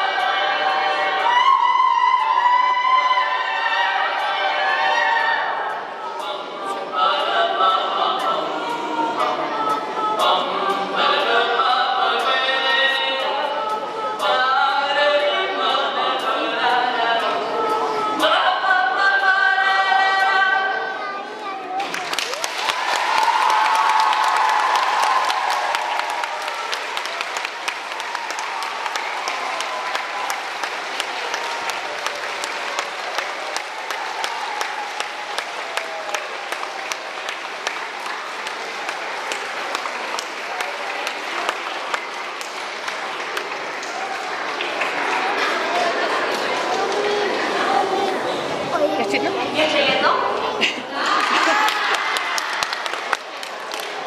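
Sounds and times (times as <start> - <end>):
layered a cappella singing: 0.0 - 21.6, 22.7 - 54.0
nearby person clapping steadily: 21.8 - 47.0
audience applauding: 21.8 - 49.2, 51.0 - 54.0.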